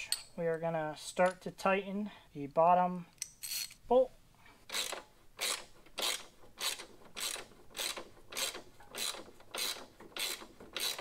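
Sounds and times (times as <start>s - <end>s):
ratchet wrench clicking: 3.2s - 3.8s, 4.7s - 11.0s.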